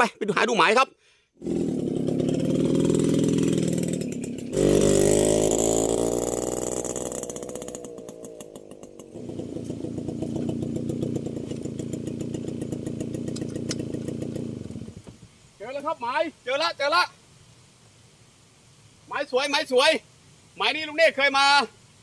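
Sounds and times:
small motorcycle engine running: 1.4s - 15.1s.

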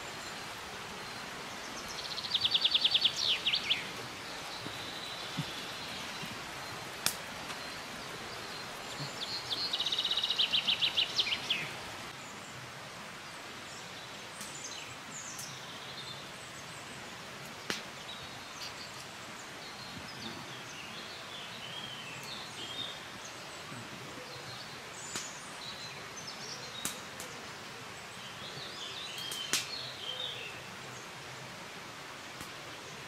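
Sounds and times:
small birds chirping: 0.0s - 12.6s, 13.2s - 31.2s
background hiss: 0.0s - 33.0s
sharp snaps: 7.0s - 7.3s, 17.7s - 17.9s, 25.1s - 25.4s, 26.8s - 27.4s, 29.2s - 29.8s.

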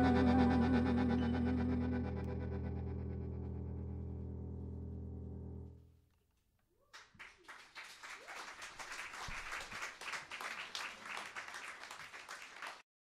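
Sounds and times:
audience applauding: 6.9s - 12.9s.

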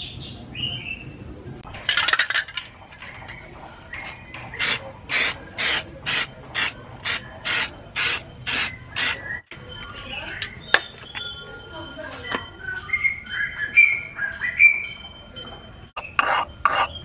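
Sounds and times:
aerosol can spraying: 4.6s - 9.2s.

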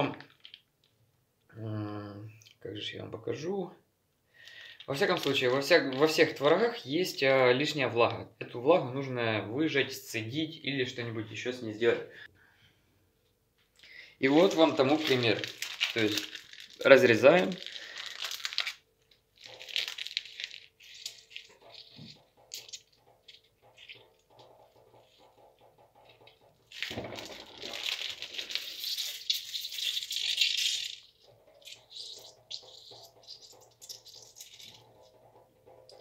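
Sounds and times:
plastic wrapping crinkling: 0.0s - 0.9s, 4.4s - 6.7s, 13.8s - 35.1s.

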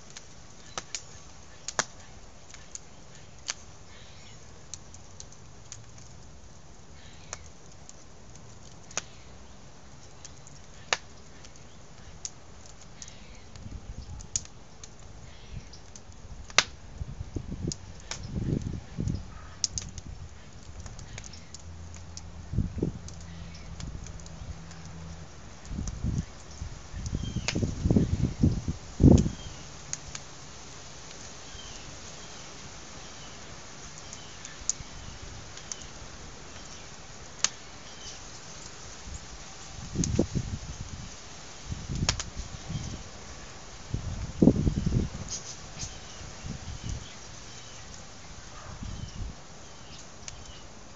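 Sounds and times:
wood fire crackling: 0.0s - 50.9s
sharp pops: 42.0s - 42.4s.

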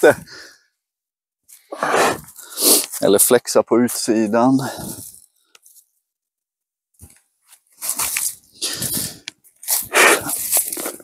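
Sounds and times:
footsteps in dry leaves: 9.6s - 11.0s.

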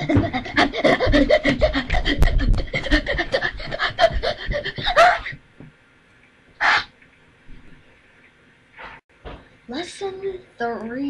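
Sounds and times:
heavy breathing: 0.0s - 5.3s
boy laughing wildly: 0.0s - 5.4s.

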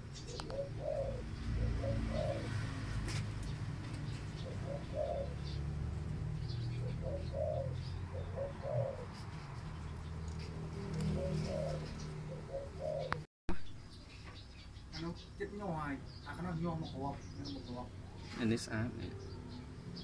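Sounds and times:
dove cooing: 0.0s - 3.2s, 4.1s - 5.8s, 6.4s - 9.6s, 10.6s - 13.2s.

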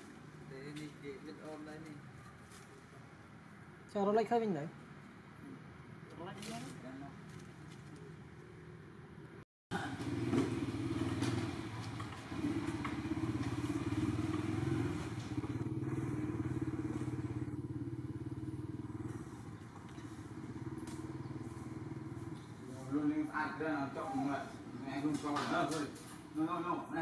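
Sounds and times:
small engine running: 9.7s - 23.2s.

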